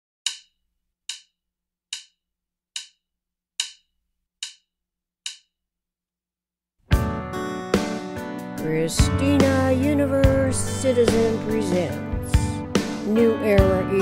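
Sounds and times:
wood block clicks: 0:00.2 - 0:03.0, 0:03.6 - 0:05.6.

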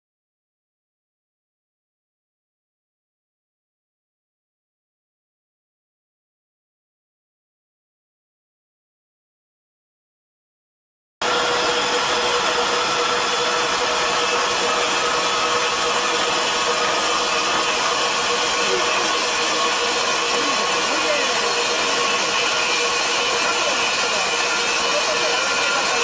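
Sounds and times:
wire saw grinding steel: 0:11.2 - 0:26.0.

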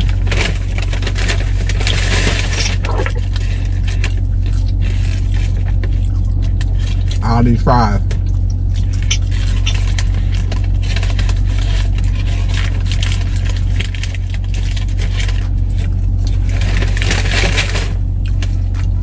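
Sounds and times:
paper bag rustling: 0:00.0 - 0:07.2, 0:09.0 - 0:19.0
low hum in car cabin: 0:00.0 - 0:19.0.

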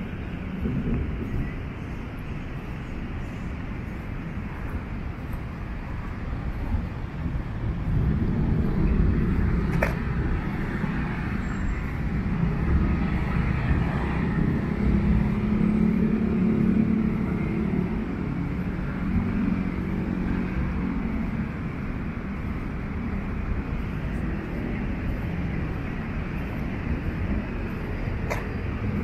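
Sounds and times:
cars passing with rumble: 0:00.0 - 0:29.0
heavy vehicle engine: 0:00.0 - 0:29.0.

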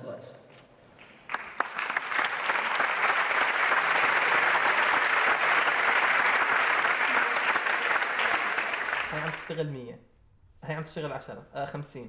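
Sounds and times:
audience applauding: 0:01.0 - 0:09.7.

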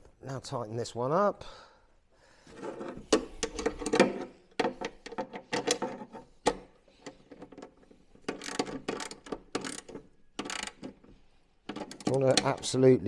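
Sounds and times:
socket ratchet clicking: 0:03.1 - 0:12.6.

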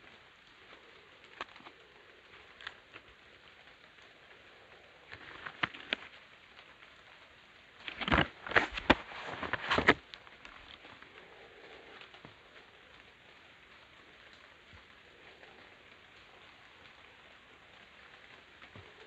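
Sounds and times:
crackling rustles: 0:00.0 - 0:19.0
hands rustling cardboard box: 0:07.8 - 0:10.0.

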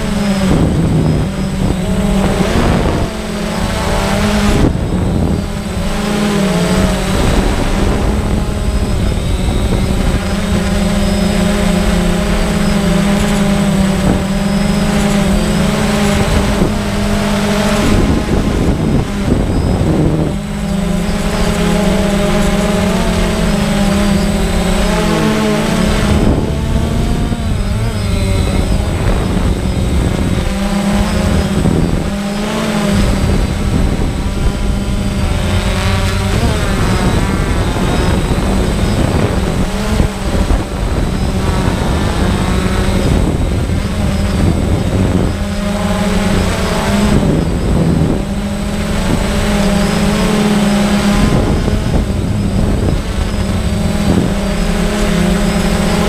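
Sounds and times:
drone propellers whining: 0:00.0 - 0:56.0.

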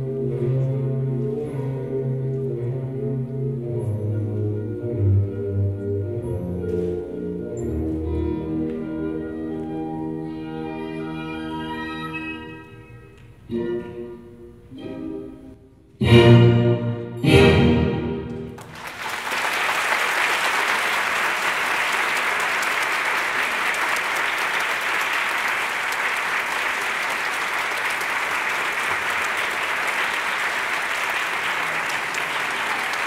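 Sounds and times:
audience applauding: 0:18.5 - 0:33.0.

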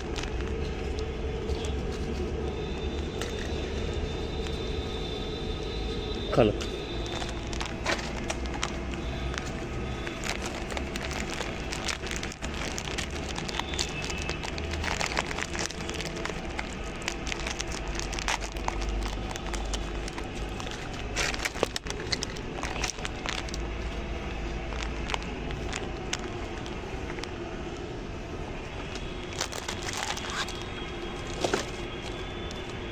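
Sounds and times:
dog crunching biscuits: 0:00.0 - 0:04.6, 0:06.6 - 0:27.3.

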